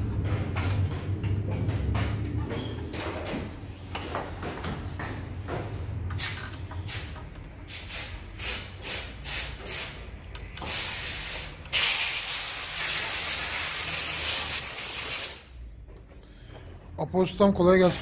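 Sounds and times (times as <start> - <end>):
spray hissing: 10.6 - 15.4.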